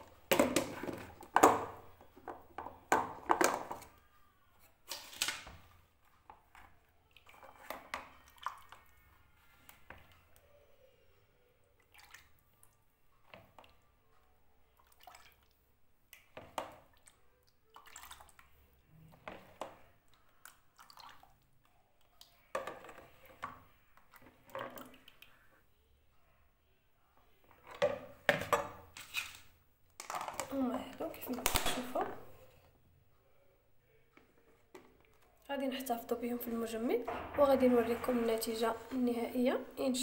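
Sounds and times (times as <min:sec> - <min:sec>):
liquid pouring and splashing: 0:07.1 - 0:09.0, 0:14.8 - 0:15.6, 0:16.2 - 0:21.6.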